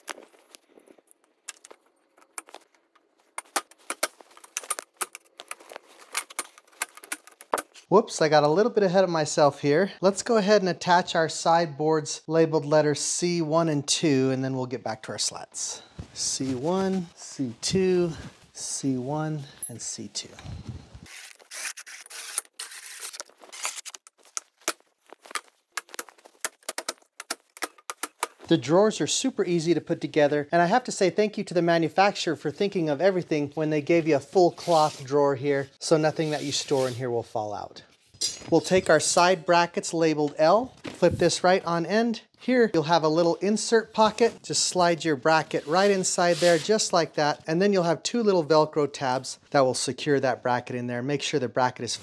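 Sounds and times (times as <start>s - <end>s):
wooden slats rubbing and scraping: 45.4s - 46.8s.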